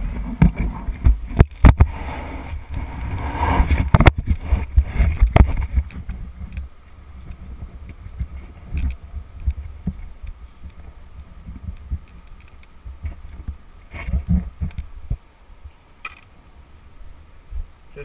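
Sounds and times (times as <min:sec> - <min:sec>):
low wind rumble: 0:00.0 - 0:18.0
camera handling knocks and bumps: 0:03.8 - 0:06.6.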